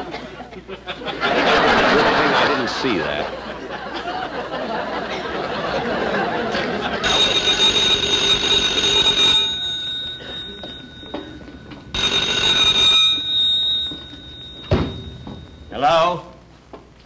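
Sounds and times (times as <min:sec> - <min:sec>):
audience laughter: 0:00.0 - 0:07.2
telephone bell ringing: 0:05.4 - 0:15.9.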